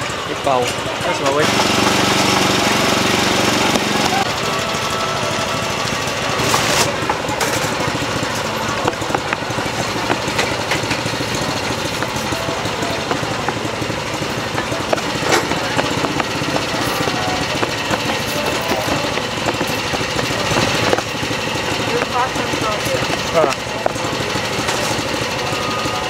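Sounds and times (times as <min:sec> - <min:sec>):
small engine rattling drone: 0:00.0 - 0:26.0.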